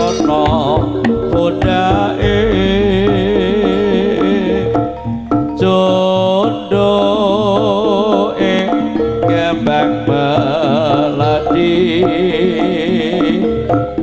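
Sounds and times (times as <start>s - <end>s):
struck metal notes: 0.0s - 7.8s
drum pattern: 0.0s - 14.0s
ornamented melody line: 0.0s - 14.0s.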